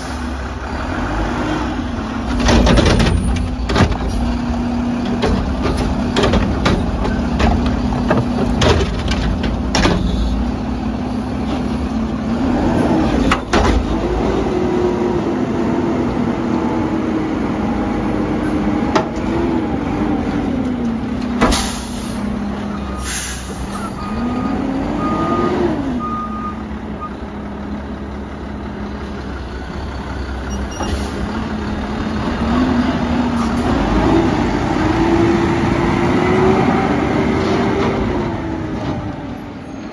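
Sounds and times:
garbage truck engine revving: 0.1s - 39.6s
hydraulics lifting: 1.8s - 14.7s
metal bins clanking: 2.3s - 4.4s, 5.0s - 10.3s
air brake release hiss: 21.5s - 22.3s, 23.0s - 24.0s.

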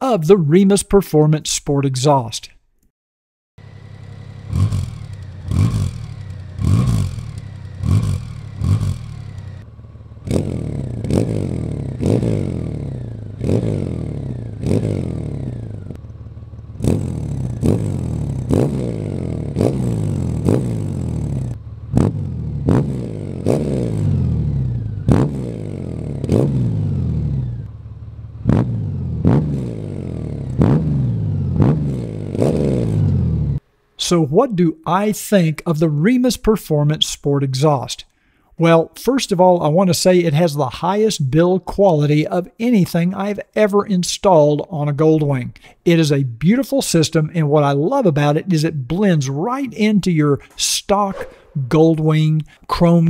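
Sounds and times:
motorcycle engine revving: 3.6s - 33.7s, 50.9s - 52.1s.

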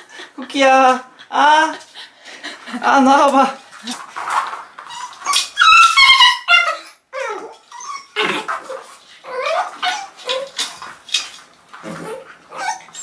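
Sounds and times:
puppy yelping and whimpering: 4.8s - 10.7s, 11.9s - 13.0s.

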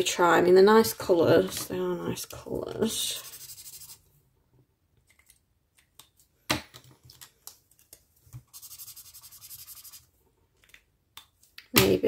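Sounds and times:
marker scribbling on paper: 3.0s - 4.0s, 8.5s - 10.0s.

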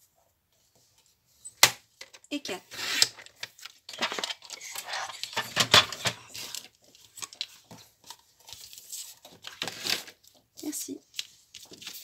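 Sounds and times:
paper rustling: 3.3s - 12.0s.

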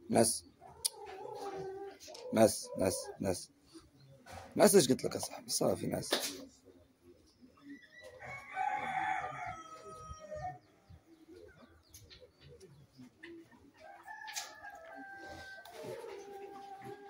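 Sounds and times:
rooster crowing: 8.2s - 10.6s, 13.8s - 17.0s.

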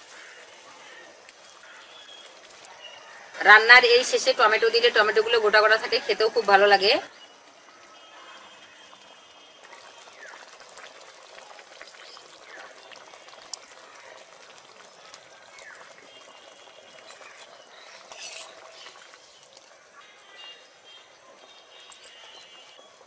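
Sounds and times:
ladle stirring pot: 9.6s - 19.8s
curry bubbling and spitting: 9.6s - 19.9s.

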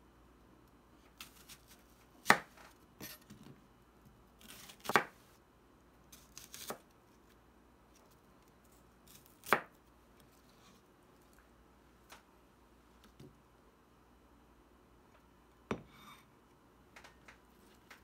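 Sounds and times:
knife slicing onion on board: 1.2s - 3.5s, 4.4s - 5.2s, 6.2s - 6.8s, 9.1s - 9.7s.

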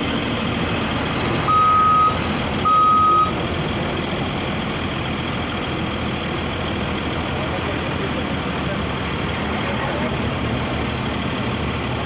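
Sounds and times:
crane engine running: 0.0s - 12.0s
crane warning beeps: 1.5s - 3.4s.

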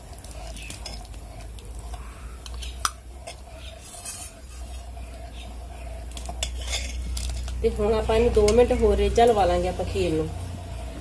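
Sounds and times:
low steady hum: 0.0s - 11.0s
ladle scraping a steel pot: 0.1s - 8.8s.

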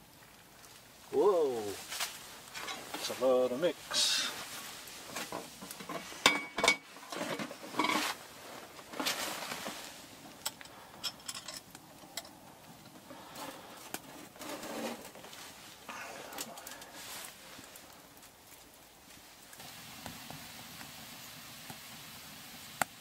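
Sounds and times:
waffle iron metal clanks and scrapes: 5.0s - 8.2s, 14.1s - 15.2s.

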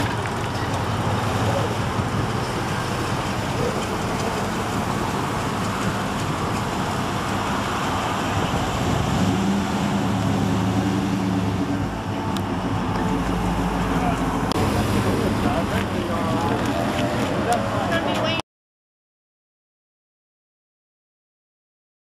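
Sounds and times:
car engines passing slowly: 0.0s - 18.4s
deep exhaust rumble: 0.0s - 18.4s.

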